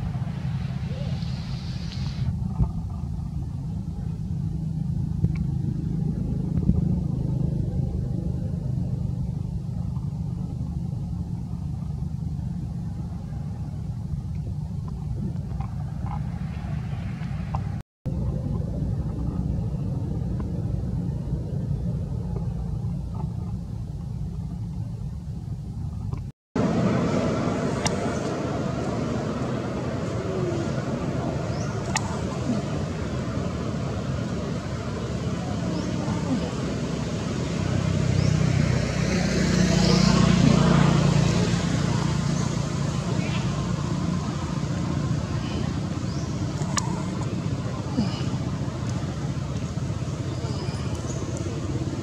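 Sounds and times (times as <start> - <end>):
steady low rumble: 0.0 - 52.0.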